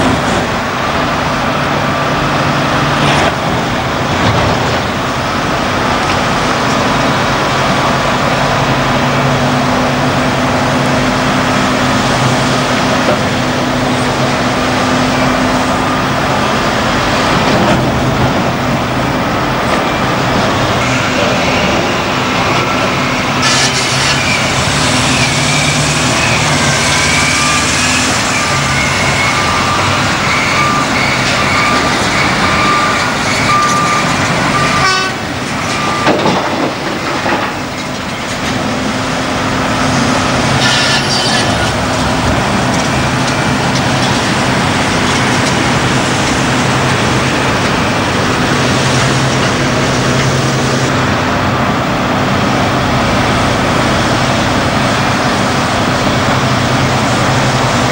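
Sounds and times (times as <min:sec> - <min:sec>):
heavy diesel engines running: 0:00.0 - 0:57.9.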